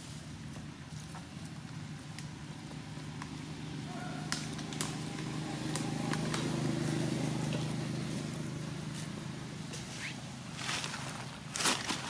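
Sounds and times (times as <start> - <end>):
vehicle engine passing by: 1.9 - 11.4.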